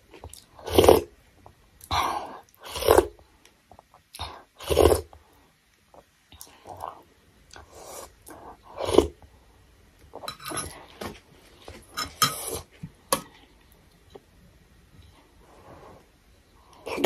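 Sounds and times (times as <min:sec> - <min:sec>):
slurping noodles: 0:00.6 - 0:01.1.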